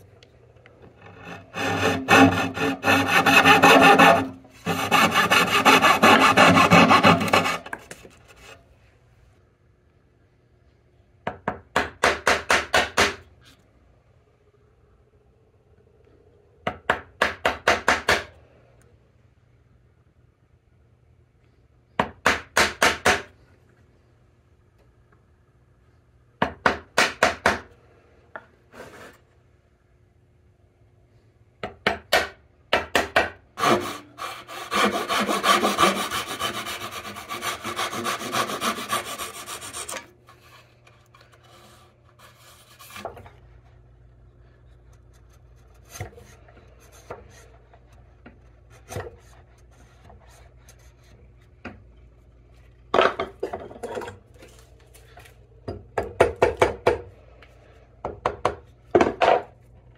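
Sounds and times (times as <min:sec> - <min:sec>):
tool scraping across wood: 0:00.8 - 0:08.6, 0:33.6 - 0:43.3.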